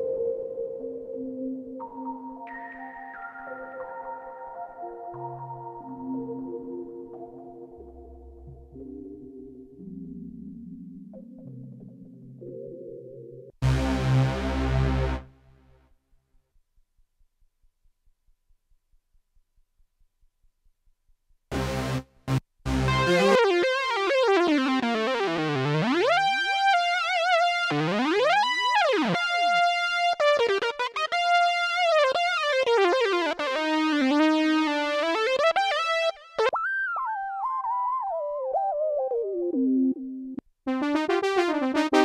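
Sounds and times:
keytar synth lead melody: 22.7s - 42.0s.

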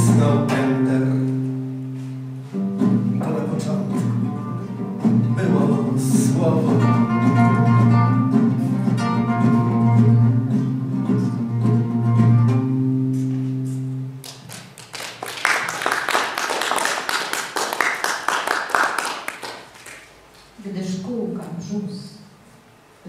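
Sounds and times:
acoustic guitar notes ringing: 0.0s - 14.2s
audience applauding: 14.2s - 20.2s.

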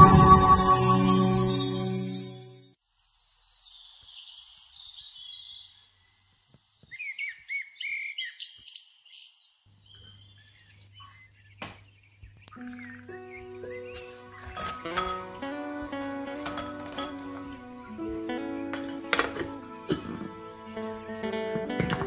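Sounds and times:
birds chirping and singing: 3.4s - 17.6s.

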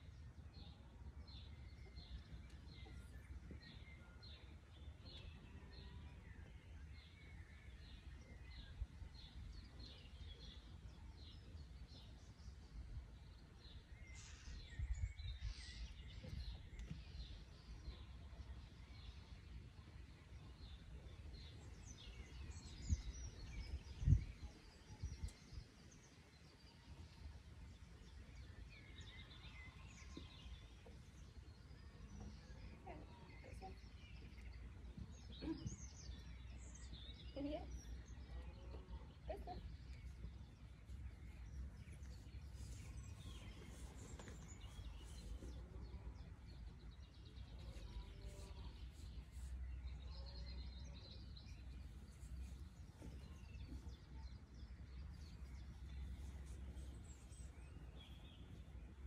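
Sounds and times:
birds chirping: 20.4s - 59.0s.

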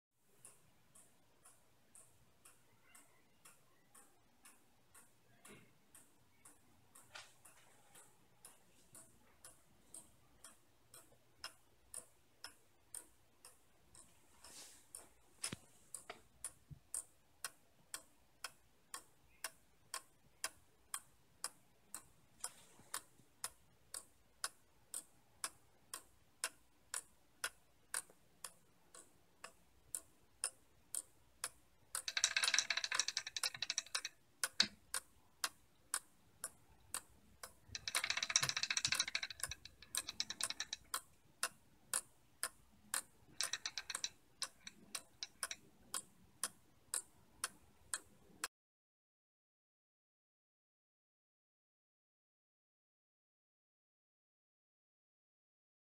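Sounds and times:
clock ticking: 0.3s - 48.5s
ball chain rattling: 32.0s - 34.0s, 37.7s - 40.8s.

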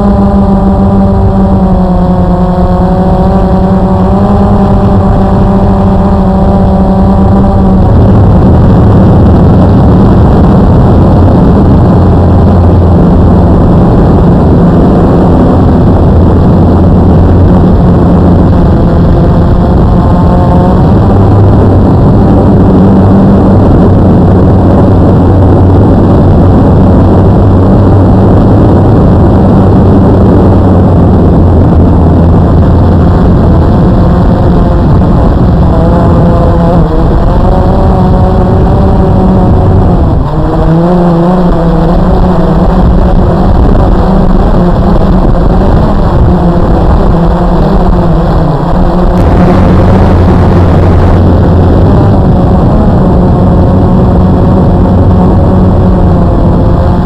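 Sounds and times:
quadcopter motors buzzing: 0.0s - 57.0s
rush of air: 7.6s - 35.7s, 49.0s - 55.9s.

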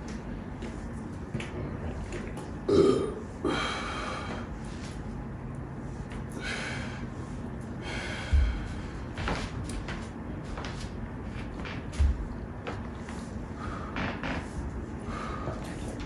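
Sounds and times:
person breathing hard: 3.3s - 4.9s, 6.2s - 9.4s, 14.9s - 16.0s.

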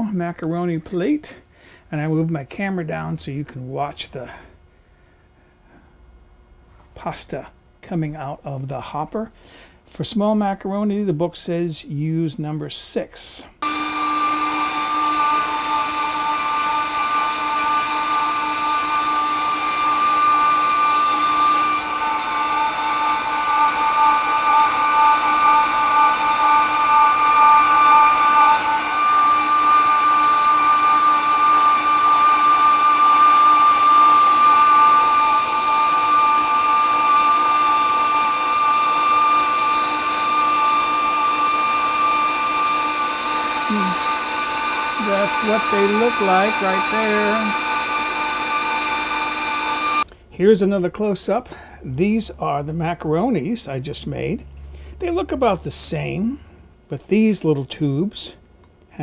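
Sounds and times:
stand mixer motor whining: 13.6s - 50.1s.

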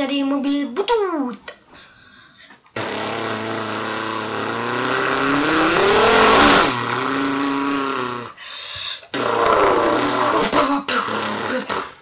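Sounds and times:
man imitating car engine with mouth: 2.8s - 8.4s, 9.1s - 12.0s.

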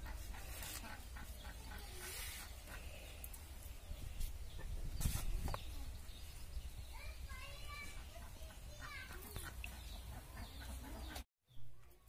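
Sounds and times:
hens clucking: 0.0s - 2.9s, 8.0s - 11.2s.

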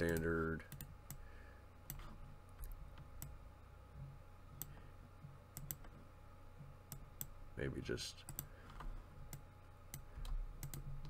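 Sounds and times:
faint low hum: 0.0s - 11.0s
keyboard and mouse clicks: 5.5s - 6.0s, 8.3s - 11.0s.

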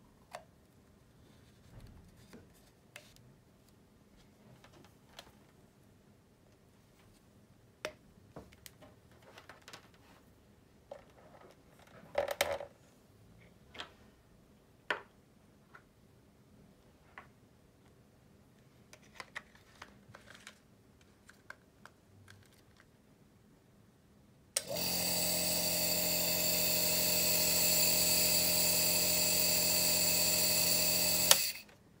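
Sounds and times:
nebulizer compressor humming: 24.6s - 31.7s.

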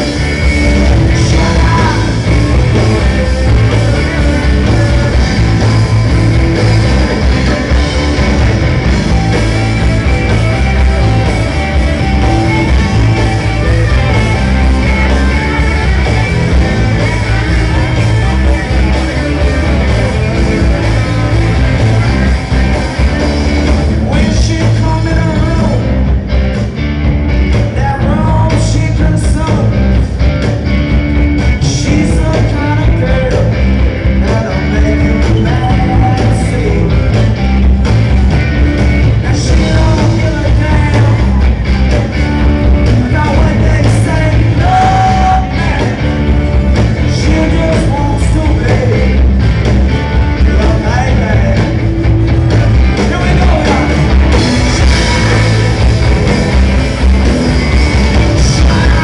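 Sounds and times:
man singing: 0.0s - 6.1s, 23.4s - 26.0s, 27.7s - 30.0s, 31.6s - 37.4s, 39.1s - 41.6s, 42.8s - 46.3s, 47.0s - 49.3s, 50.3s - 51.9s, 52.9s - 55.8s, 57.6s - 59.0s
bass guitar: 0.0s - 59.0s
electric guitar: 0.0s - 59.0s
hammond organ: 0.0s - 59.0s.

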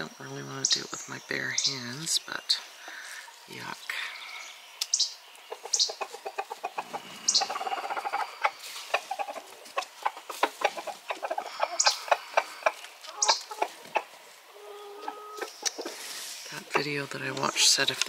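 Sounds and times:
chickens clucking: 0.0s - 18.0s
high-pitched chicken squawks: 5.5s - 16.0s.

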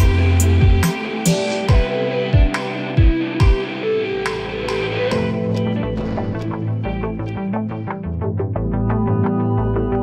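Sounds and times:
guitar music over drum beat: 0.0s - 7.6s.

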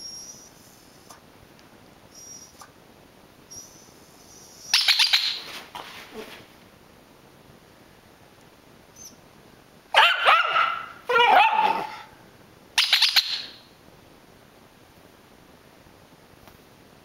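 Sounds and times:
dog barking: 9.9s - 12.1s.

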